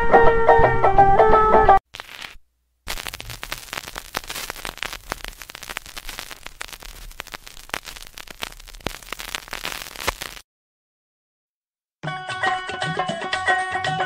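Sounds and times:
vinyl crackle and pops: 1.9 - 10.4.

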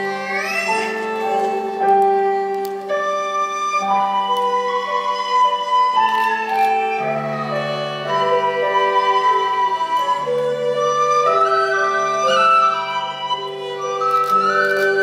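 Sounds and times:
ensemble melody of held notes: 0.0 - 15.0.

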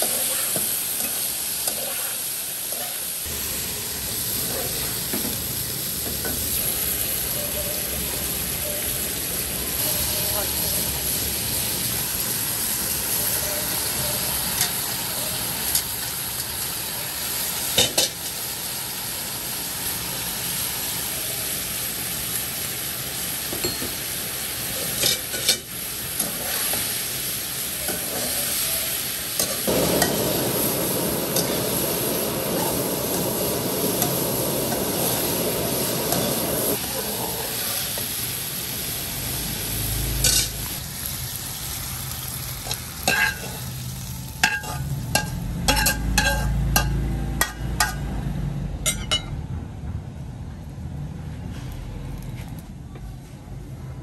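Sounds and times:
spatula scraping a wok: 0.0 - 3.3, 24.8 - 27.2, 27.8 - 29.7, 40.2 - 40.7
food sizzling in a wok: 0.0 - 49.3.

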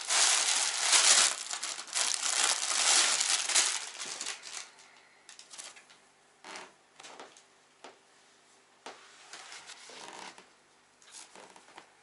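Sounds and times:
plastic packaging crinkling: 0.0 - 5.8
plastic rustling: 0.0 - 5.8.

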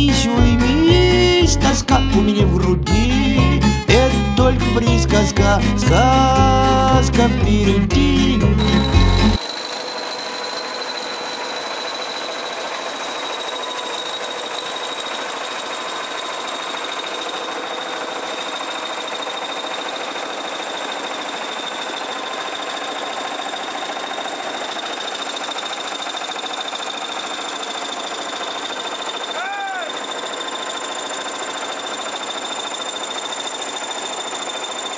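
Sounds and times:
heavy machinery engine idling: 3.3 - 29.4
thin high whine: 8.6 - 15.2.

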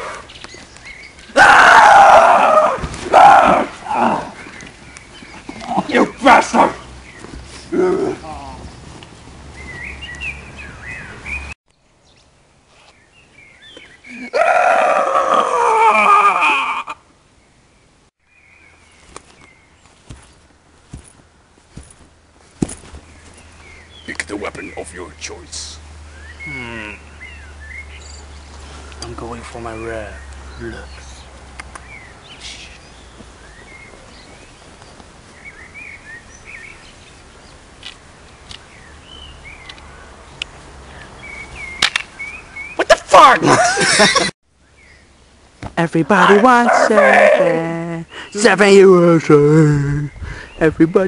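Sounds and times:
small birds singing: 0.0 - 15.4, 17.3 - 51.0
outdoor background noise: 0.0 - 51.0
rustling hiss: 17.1 - 42.6
man yelling: 42.8 - 43.7.

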